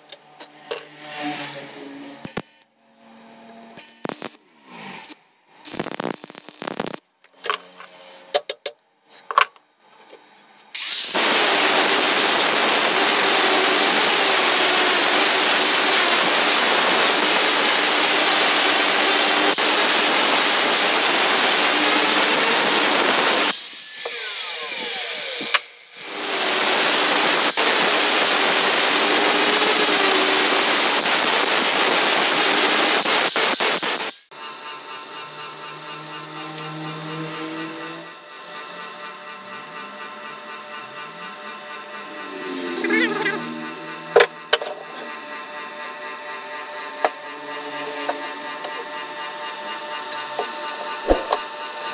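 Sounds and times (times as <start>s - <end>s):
angle grinder grinding steel: 0.1s - 8.2s, 10.8s - 51.9s
welding arc crackling: 3.8s - 7.1s, 10.8s - 34.3s.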